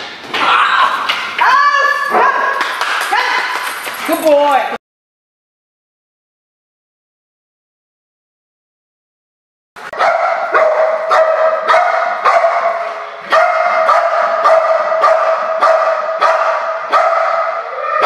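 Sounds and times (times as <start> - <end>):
dog barking loudly: 9.9 - 17.8.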